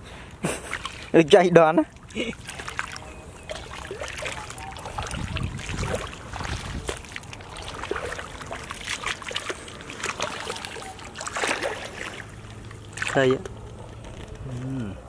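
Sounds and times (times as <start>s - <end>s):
hands splashing in muddy water: 0.5s - 1.2s, 1.9s - 13.5s.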